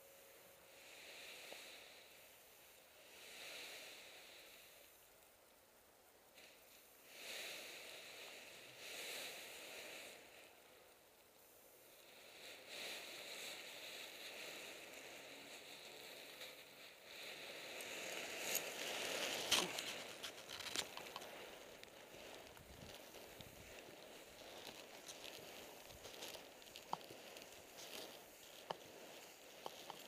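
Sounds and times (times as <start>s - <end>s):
nylon fabric rustling and crinkling: 14.0s - 30.0s.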